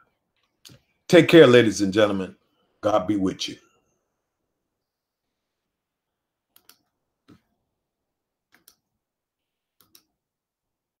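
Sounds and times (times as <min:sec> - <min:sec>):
computer mouse clicks: 0:06.5 - 0:07.5, 0:08.5 - 0:08.9, 0:09.8 - 0:10.2.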